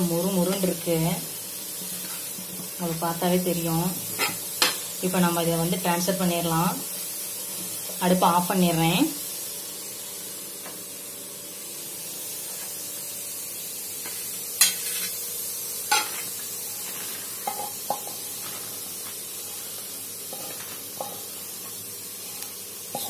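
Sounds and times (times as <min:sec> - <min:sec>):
potatoes sizzling on pan: 0:00.0 - 0:23.0
spatula scraping pan: 0:15.9 - 0:23.0.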